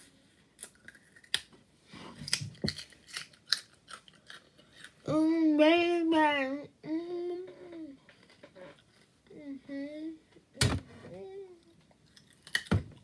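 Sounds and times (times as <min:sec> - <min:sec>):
carrot being bitten and chewed: 0:00.6 - 0:01.5, 0:12.0 - 0:13.0.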